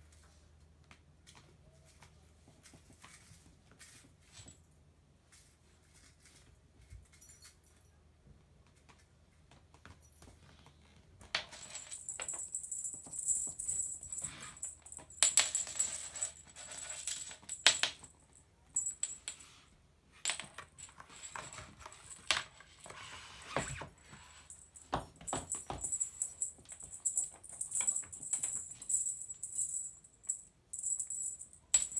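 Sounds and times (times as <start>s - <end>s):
cat toys rattling and jingling: 11.4s - 18.2s, 24.1s - 31.9s.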